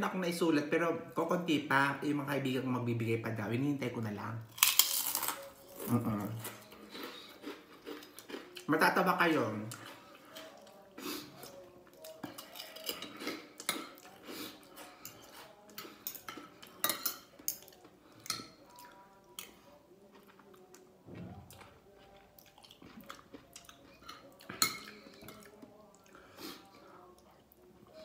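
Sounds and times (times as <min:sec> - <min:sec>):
chewing: 0:04.6 - 0:08.7, 0:09.7 - 0:28.0
cutlery clinking on ceramic plate: 0:15.0 - 0:17.7, 0:24.0 - 0:25.5.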